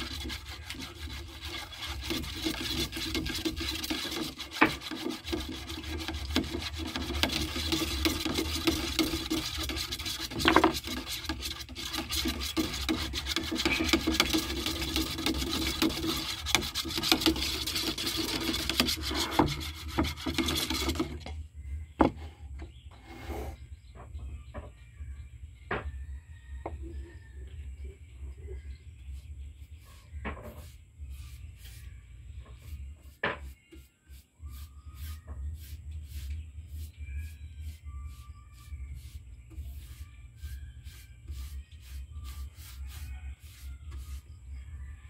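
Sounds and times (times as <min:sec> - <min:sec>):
stick scraping metal paint can: 0:00.0 - 0:21.4.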